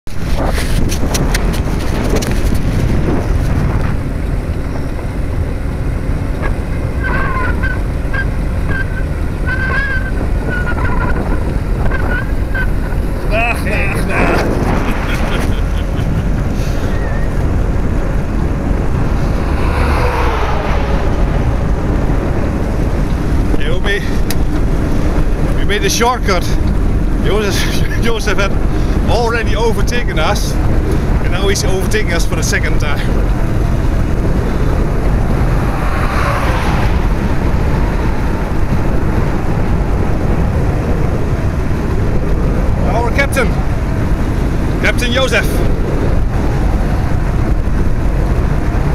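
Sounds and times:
tyre and road rumble: 0:00.0 - 0:48.9
wind rushing over microphone: 0:00.0 - 0:48.9.

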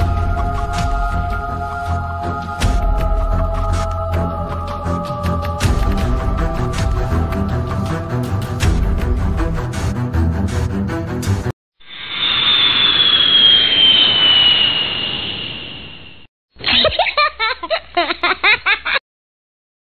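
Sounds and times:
whoosh with falling tone: 0:11.8 - 0:16.3.

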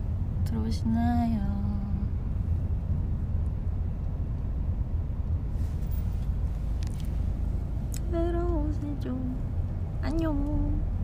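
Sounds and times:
car engine rumble: 0:00.0 - 0:11.0
road noise: 0:00.0 - 0:11.0.

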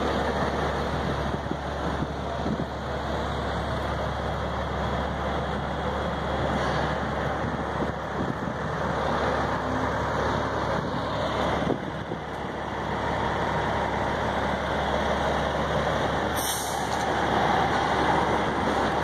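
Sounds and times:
truck engine idling: 0:00.0 - 0:19.0
air hiss: 0:16.4 - 0:17.0.

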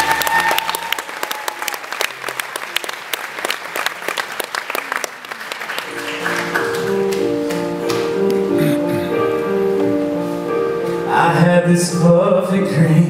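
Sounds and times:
audience applause: 0:00.0 - 0:08.7.

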